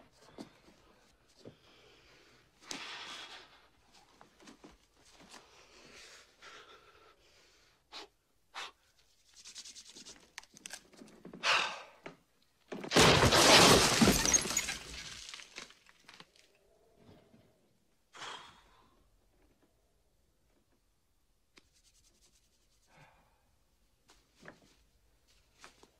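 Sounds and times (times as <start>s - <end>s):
loud crash of things breaking: 12.7s - 16.2s.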